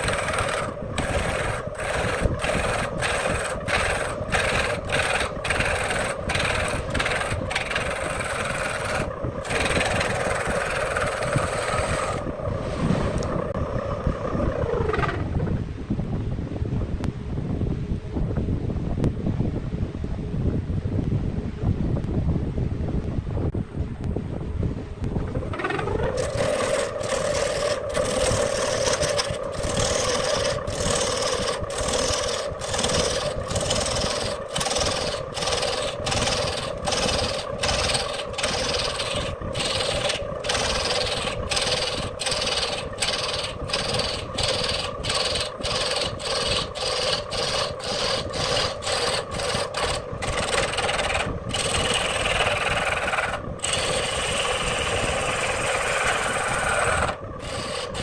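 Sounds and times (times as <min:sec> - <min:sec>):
gouge scraping wood: 0:00.0 - 0:13.3, 0:25.5 - 0:58.0
lathe motor hum: 0:00.0 - 0:15.2, 0:25.3 - 0:58.0.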